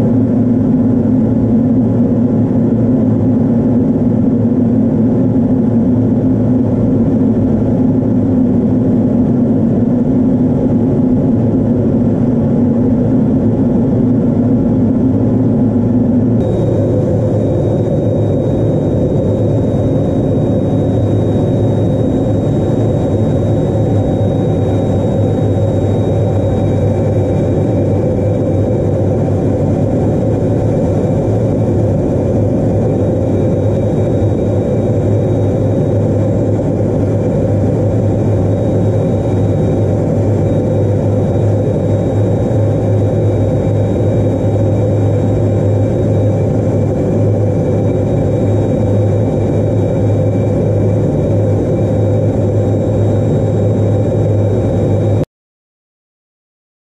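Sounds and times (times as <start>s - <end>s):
jet engine drone in cockpit: 0.0s - 55.3s
thin high whine: 16.1s - 55.2s.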